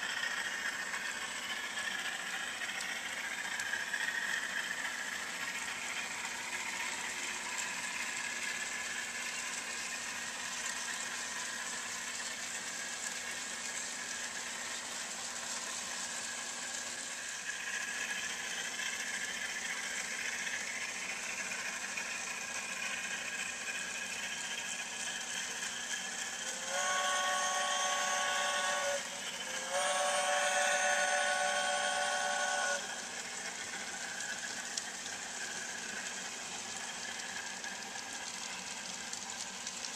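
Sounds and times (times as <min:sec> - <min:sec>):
model train motors whirring: 0:00.0 - 0:39.9
train chime signal blasts: 0:26.6 - 0:32.8.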